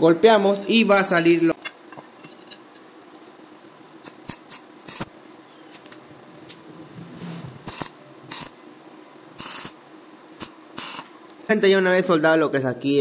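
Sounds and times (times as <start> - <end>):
welding arc bursts: 4.0 - 5.1, 7.6 - 8.6, 9.3 - 9.8, 10.4 - 11.2.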